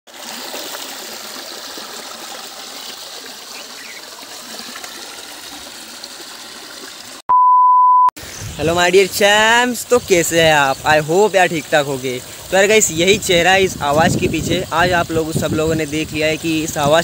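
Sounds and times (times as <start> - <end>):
water running over waterfall: 0.1 - 7.2, 8.2 - 17.0
high-pitched beep: 7.3 - 8.1.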